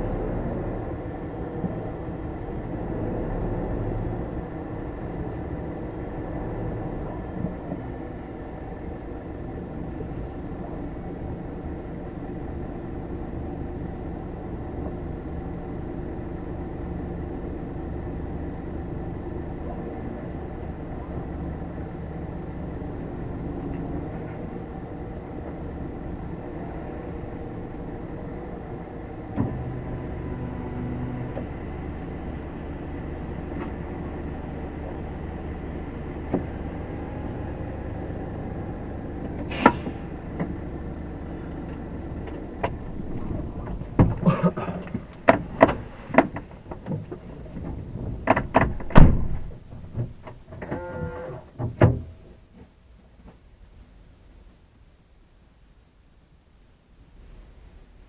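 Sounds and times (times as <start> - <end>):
diesel engine idling: 0.0 - 50.5
sharp knocks and clicks: 44.8 - 50.8.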